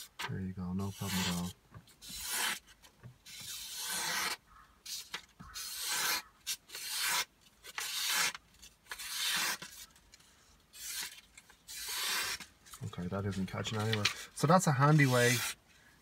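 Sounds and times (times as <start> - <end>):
knife slicing through paper: 0.9 - 2.6, 3.3 - 9.9, 10.7 - 12.4, 13.6 - 15.6.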